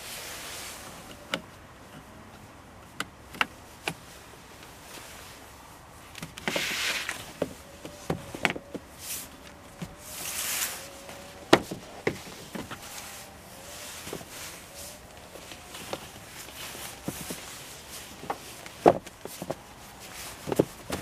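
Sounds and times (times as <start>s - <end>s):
boards scraping as they slide: 6.4s - 7.5s, 9.0s - 21.0s.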